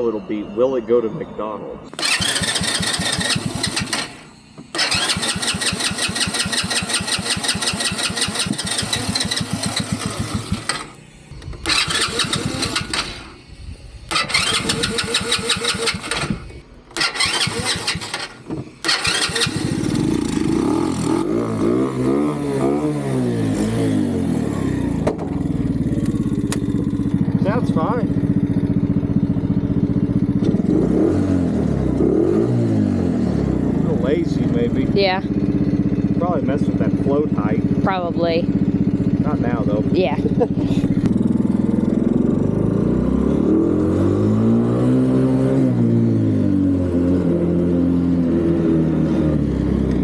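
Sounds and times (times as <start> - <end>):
small engine cranking: 1.9 - 13.5, 14.1 - 20.5
small engine running unevenly: 1.9 - 21.7, 23.4 - 31.0, 33.5 - 43.8.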